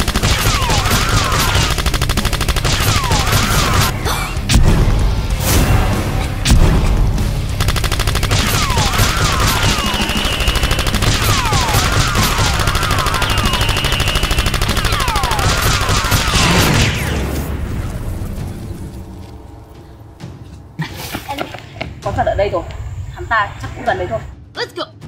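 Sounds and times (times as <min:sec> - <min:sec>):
automatic gunfire: 0:00.0 - 0:03.9, 0:07.6 - 0:17.2
swooping whistles: 0:09.4 - 0:11.0, 0:12.8 - 0:14.6.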